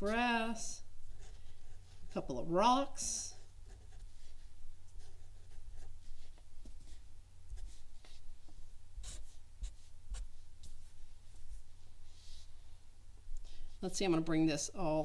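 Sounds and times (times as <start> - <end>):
marker scratching on paper: 3.2 - 12.5.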